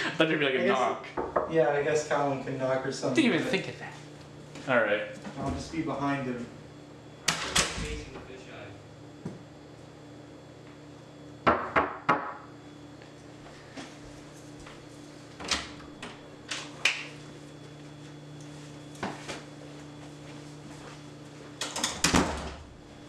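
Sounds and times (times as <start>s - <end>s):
knocking on door: 11.4s - 12.4s.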